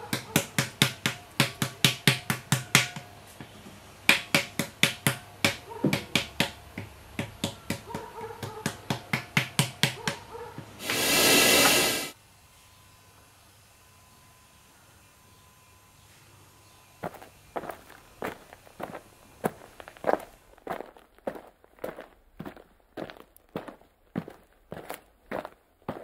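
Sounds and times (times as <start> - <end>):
hiss: 10.8 - 12.2.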